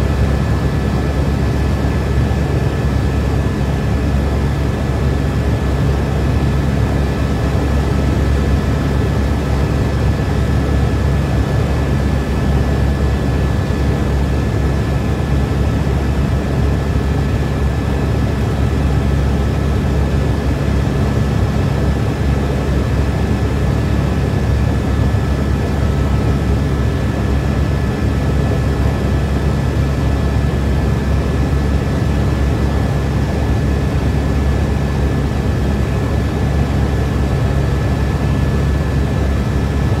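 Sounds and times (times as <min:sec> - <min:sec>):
helicopter rotor and engine drone: 0:00.0 - 0:40.0.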